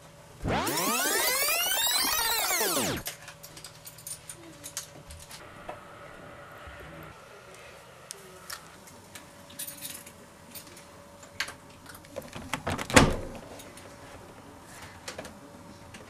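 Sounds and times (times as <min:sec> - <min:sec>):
keys jingling in a lock: 0:03.4 - 0:04.9.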